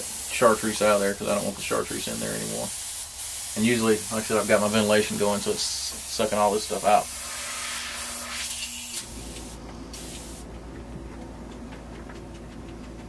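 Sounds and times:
airbrush spraying air hiss: 0.0s - 10.5s
low steady hum: 9.0s - 13.0s.

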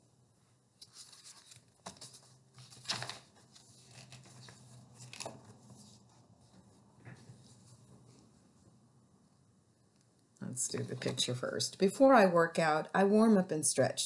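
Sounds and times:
book pages rustling: 0.8s - 8.6s.

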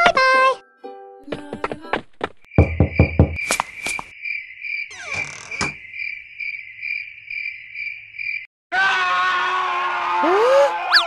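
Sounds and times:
crickets chirping: 2.5s - 8.5s.

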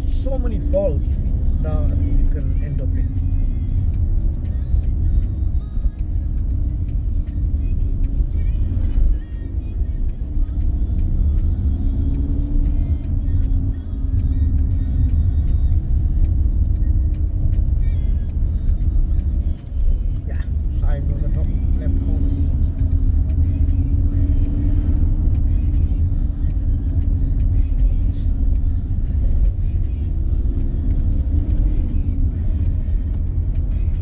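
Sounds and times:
car cabin engine and road rumble: 0.0s - 34.0s.

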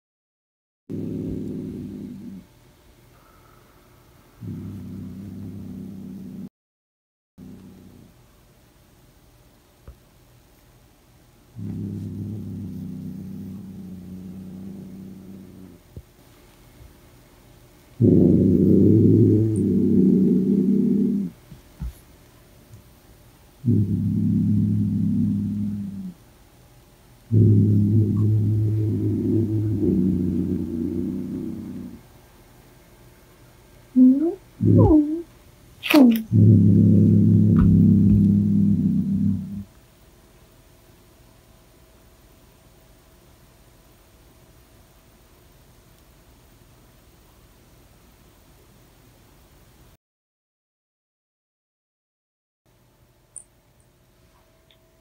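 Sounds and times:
cat growling: 0.9s - 2.5s, 4.4s - 6.5s, 7.4s - 8.2s, 11.6s - 15.8s, 18.0s - 21.4s, 23.6s - 26.2s, 27.3s - 32.0s, 34.0s - 39.7s.

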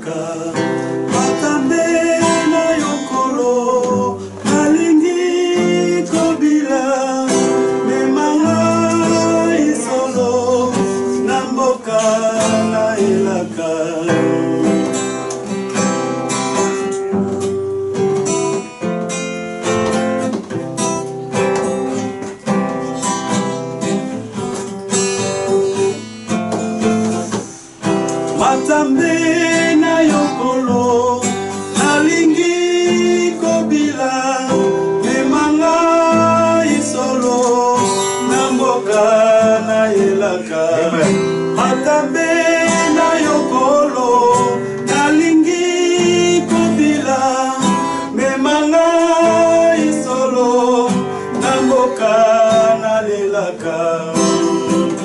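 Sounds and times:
man singing: 0.0s - 15.3s, 28.2s - 55.0s
acoustic guitar strumming: 0.0s - 55.0s.

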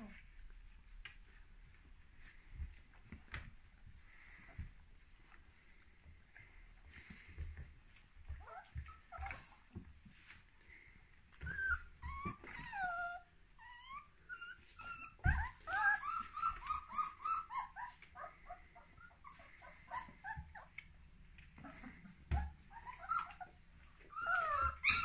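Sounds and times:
puppies whining and squealing: 6.3s - 25.0s.

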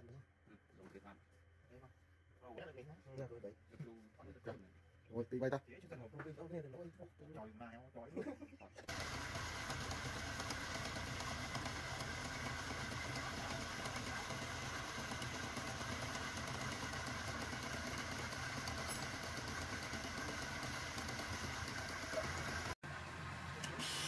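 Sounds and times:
wood lathe motor running: 8.9s - 22.8s.

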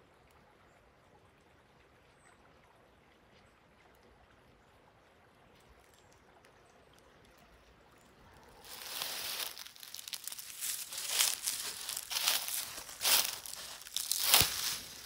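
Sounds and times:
footsteps crunching dry leaves: 8.6s - 15.0s.

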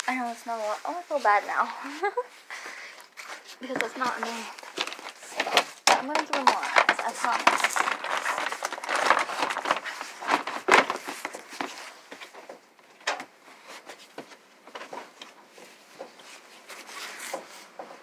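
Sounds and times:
rustling: 0.0s - 18.0s.

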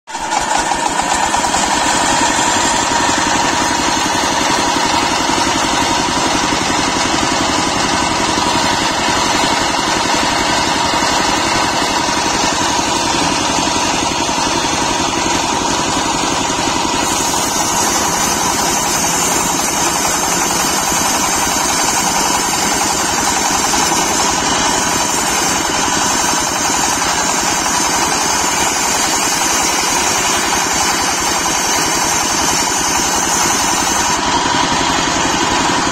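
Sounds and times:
circular saw cutting log: 0.1s - 35.9s
diesel engine running: 0.1s - 35.9s.

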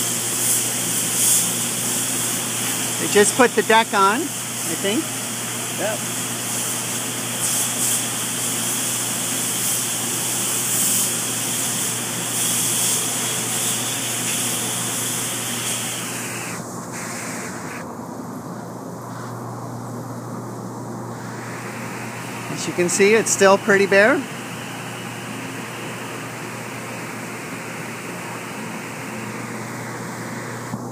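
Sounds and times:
low mechanical hum: 0.0s - 30.9s
rushing air hiss: 5.8s - 17.9s, 21.1s - 24.6s.

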